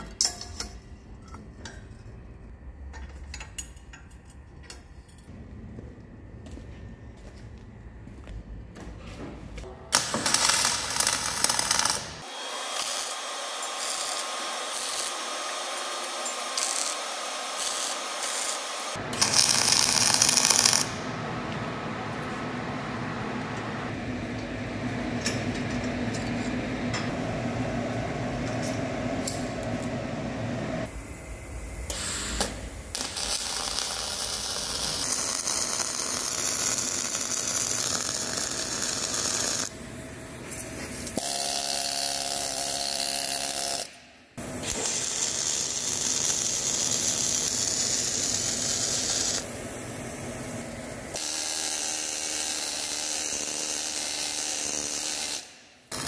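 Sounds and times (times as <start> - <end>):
welding arc crackling and sputtering: 9.9 - 21.0, 30.8 - 39.7, 41.1 - 49.8, 50.5 - 56.0.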